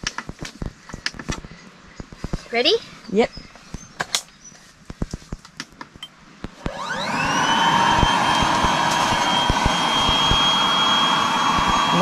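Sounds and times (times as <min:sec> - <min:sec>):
handling clicks and rustles: 0:00.0 - 0:02.6, 0:03.5 - 0:06.6
electric air pump whirring: 0:06.4 - 0:12.0.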